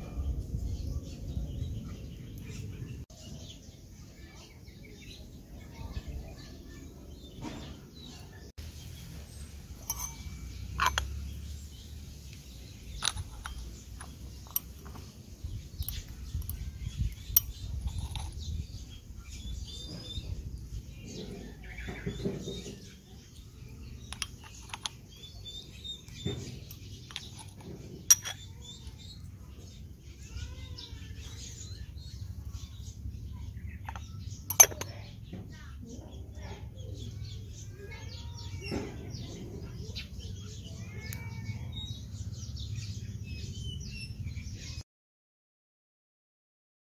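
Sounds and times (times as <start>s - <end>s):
birds chirping: 0.0s - 44.8s
metal spoon tapping pot and plate: 9.8s - 11.2s, 33.9s - 35.0s.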